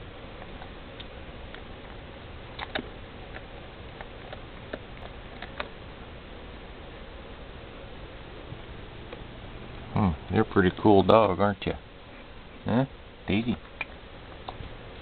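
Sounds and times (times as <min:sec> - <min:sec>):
dog gnawing a chew bone: 0:00.4 - 0:05.8.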